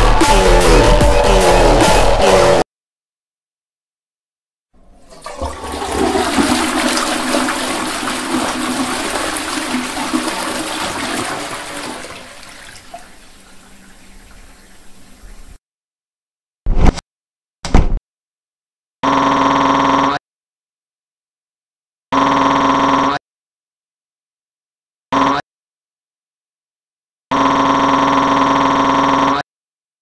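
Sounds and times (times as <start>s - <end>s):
toilet flushing: 4.8s - 15.6s.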